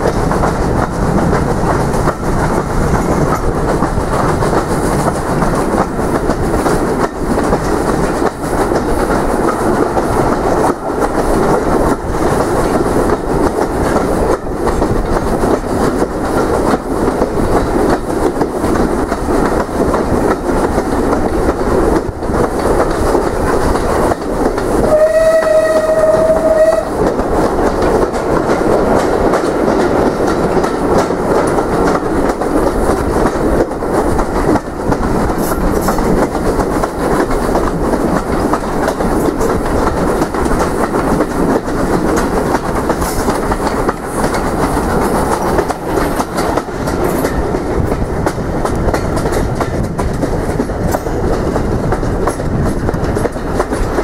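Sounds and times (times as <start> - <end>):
train rumbling: 0.0 - 54.0
wheels clicking over rail joints: 0.0 - 54.0
train horn blast: 24.8 - 26.9.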